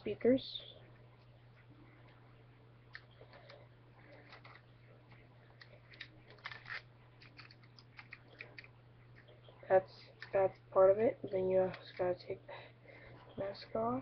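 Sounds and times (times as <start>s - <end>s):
steady low hum: 0.0s - 14.0s
plastic bricks clicking and rattling: 3.3s - 4.6s, 5.6s - 8.7s.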